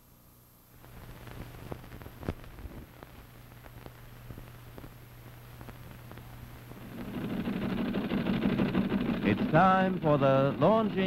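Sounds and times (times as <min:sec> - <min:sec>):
low hum and hiss: 0:00.0 - 0:11.0
film clicks and pops: 0:01.0 - 0:05.0, 0:05.6 - 0:07.2.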